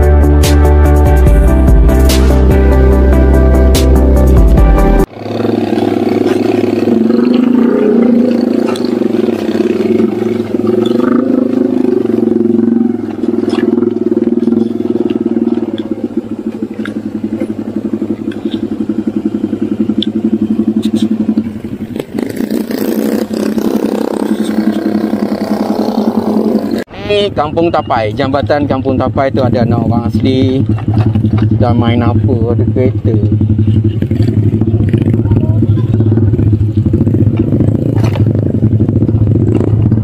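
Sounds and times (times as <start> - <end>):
motorcycle engine putter: 5.2 - 26.8, 30.0 - 32.3, 33.0 - 40.0.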